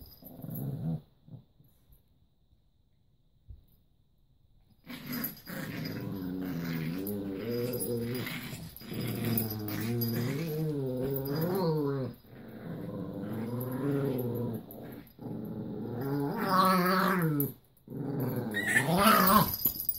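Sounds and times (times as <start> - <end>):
small dogs play-growling: 4.8 - 19.9.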